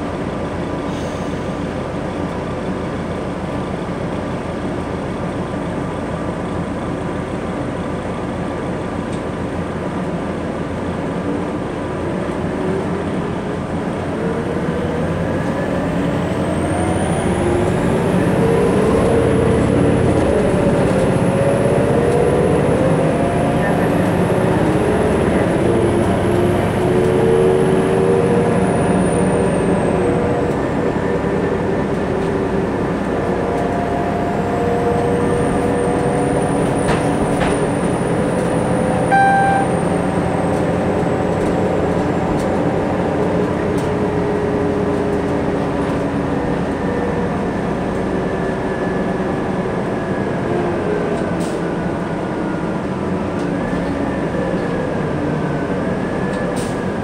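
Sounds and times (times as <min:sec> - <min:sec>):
bus engine running: 0:00.0 - 0:57.0
road noise: 0:00.0 - 0:57.0
short chime: 0:39.1 - 0:40.1.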